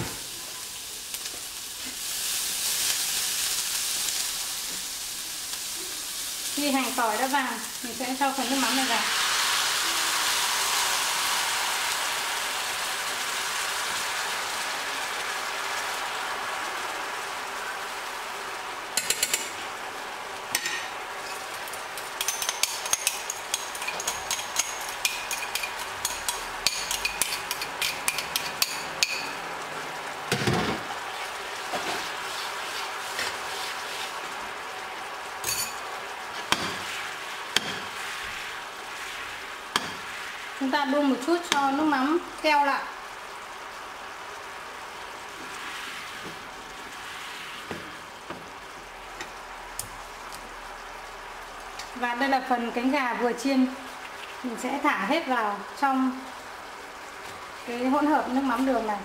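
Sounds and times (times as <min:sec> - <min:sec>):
sauce crackling and popping: 0:00.0 - 0:59.0
sauce sizzling in frying pan: 0:00.0 - 0:59.0.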